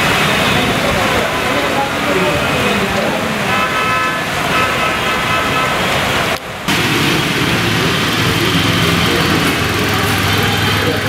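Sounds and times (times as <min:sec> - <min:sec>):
road traffic: 0:00.0 - 0:11.0
steady rain: 0:00.0 - 0:11.0
vehicle horn: 0:03.4 - 0:06.0.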